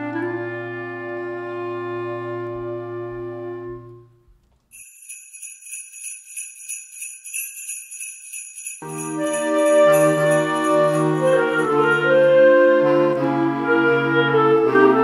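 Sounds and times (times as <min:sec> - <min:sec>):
jingle bells shaken: 0:04.7 - 0:12.8
clarinet choir chord: 0:09.1 - 0:15.0.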